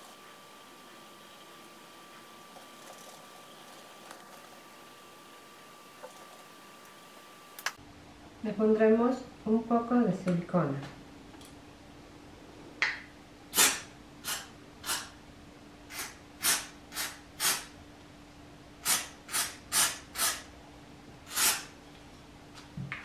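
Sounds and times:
aerosol can spraying bursts: 0:13.5 - 0:15.1, 0:15.9 - 0:17.7, 0:18.8 - 0:20.4, 0:21.3 - 0:21.7.

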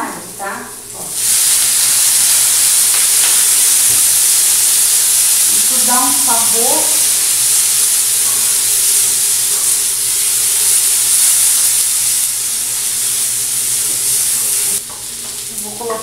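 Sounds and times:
loud steady steam hiss: 0:00.1 - 0:16.0
vegetables sizzling on a griddle: 0:00.1 - 0:16.0.

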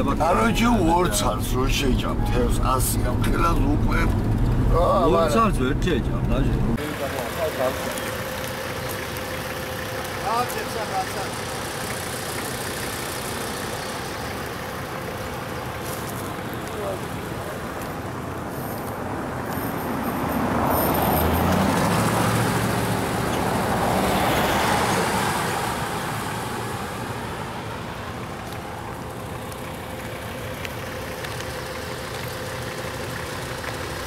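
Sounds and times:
car driving past: 0:19.4 - 0:28.2.

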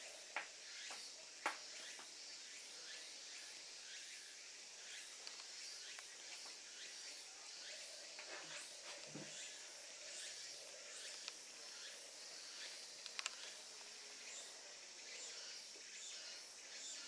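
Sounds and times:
insect chorus: 0:00.0 - 0:17.0
soft ticks: 0:13.0 - 0:13.9.

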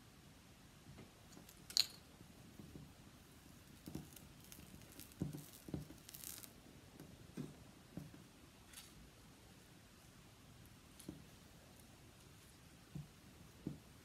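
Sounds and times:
rustle of clay handled: 0:01.0 - 0:14.0
soft dull thumps of clay: 0:12.8 - 0:14.0.

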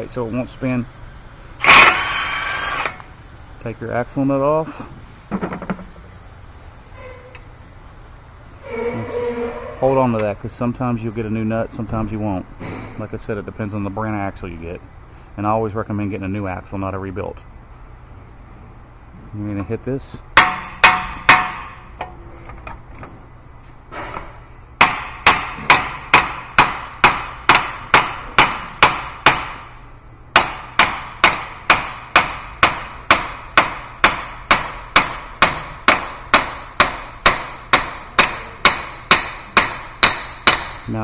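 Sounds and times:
hammer striking metal shaft: 0:30.4 - 0:40.9.

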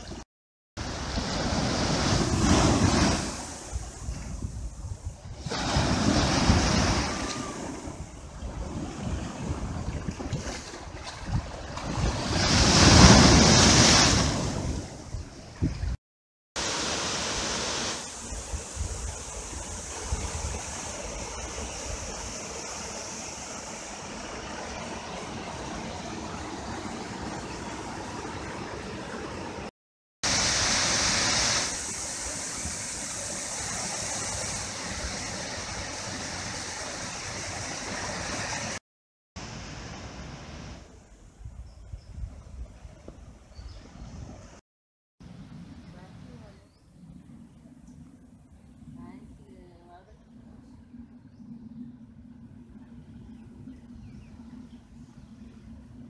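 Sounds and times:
waterfall splashing into pool: 0:16.6 - 0:18.3, 0:30.2 - 0:38.8.

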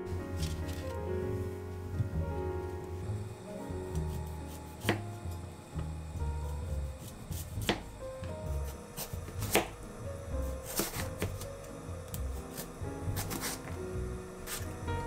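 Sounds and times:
background music: 0:00.0 - 0:15.0
knife chopping on cutting board: 0:04.8 - 0:05.1, 0:07.0 - 0:07.9, 0:08.5 - 0:09.8, 0:10.6 - 0:11.5, 0:12.5 - 0:13.6.

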